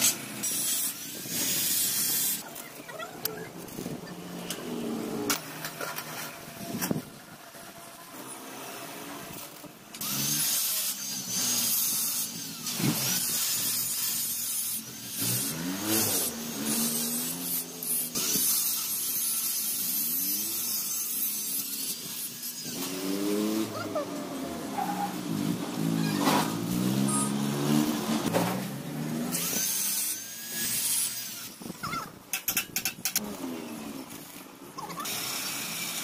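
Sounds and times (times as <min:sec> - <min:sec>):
harsh metalworking hiss: 0:00.0 - 0:02.5, 0:10.1 - 0:23.0.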